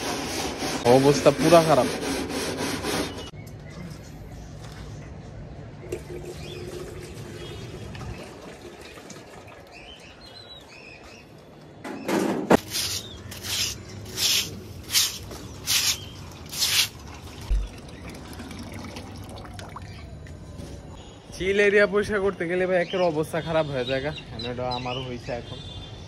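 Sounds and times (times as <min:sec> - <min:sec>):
scrubbing strokes: 0:12.6 - 0:17.4.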